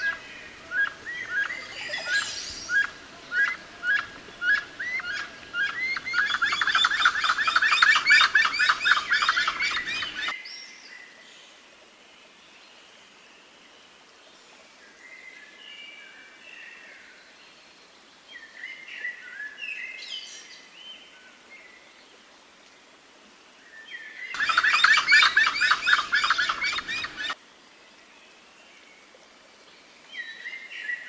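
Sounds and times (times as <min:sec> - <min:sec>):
squeaky gliding bird calls: 0:00.0 - 0:10.3, 0:24.4 - 0:27.4
loud rapid bird chattering: 0:01.2 - 0:10.3, 0:24.4 - 0:27.4.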